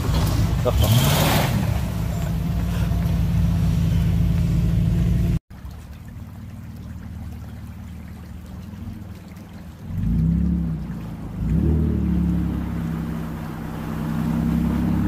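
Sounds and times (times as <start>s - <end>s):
vehicle engine running: 0.0s - 5.4s
creek running over gravel: 0.0s - 15.0s.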